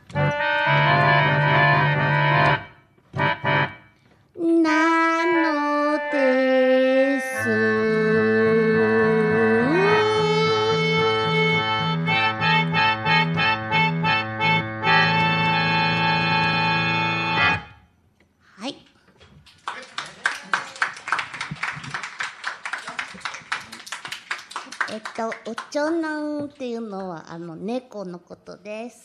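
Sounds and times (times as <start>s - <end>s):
organ music: 0.0s - 4.1s, 4.7s - 18.1s.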